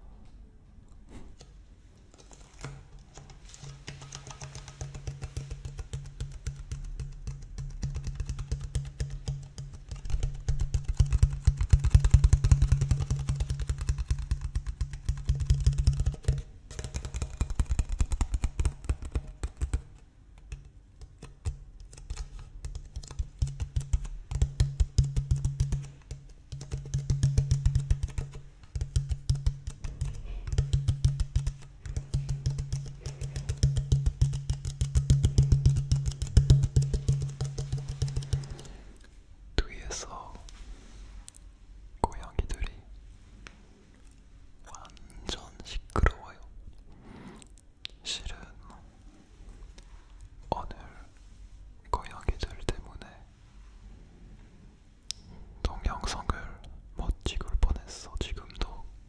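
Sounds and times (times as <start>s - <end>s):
fingertips tapping plastic bottle: 1.4s - 38.8s.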